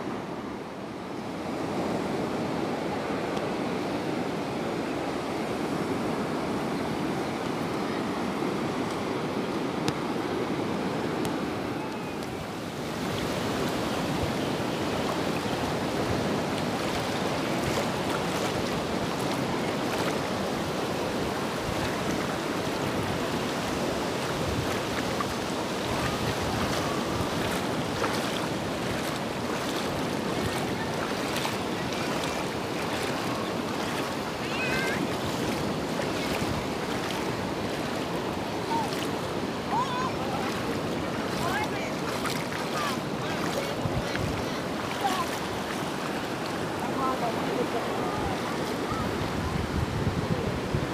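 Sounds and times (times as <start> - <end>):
surf washing onto beach: 0.0 - 50.9
wind on microphone: 11.8 - 47.2, 48.0 - 50.9.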